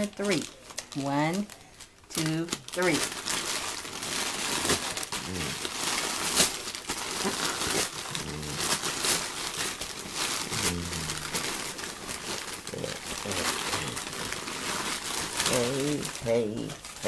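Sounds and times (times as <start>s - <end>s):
wrapping paper crinkling and tearing: 0.0s - 17.0s
short low voice sounds: 5.3s - 5.6s, 8.2s - 8.6s, 10.5s - 11.3s, 12.7s - 14.0s.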